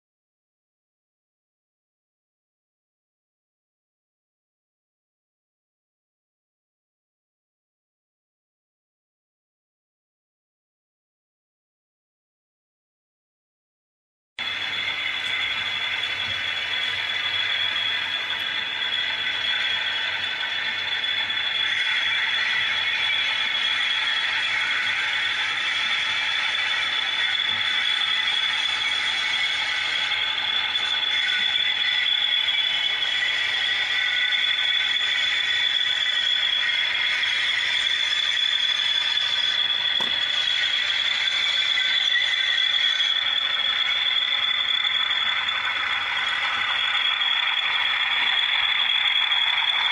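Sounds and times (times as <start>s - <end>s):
high whine: 14.4s - 49.9s
model locomotive motor whirring: 14.4s - 49.9s.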